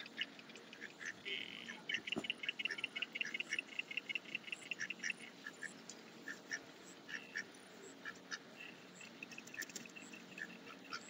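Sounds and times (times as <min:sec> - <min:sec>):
ducks quacking softly: 0:00.0 - 0:11.0.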